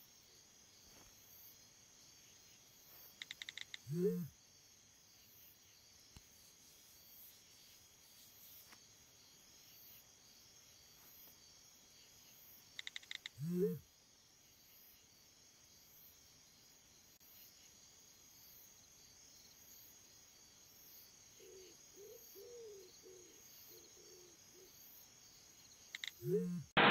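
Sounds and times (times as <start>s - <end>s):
crickets chirping: 0.0s - 26.8s
quick beeps: 3.2s - 4.3s, 26.0s - 26.6s.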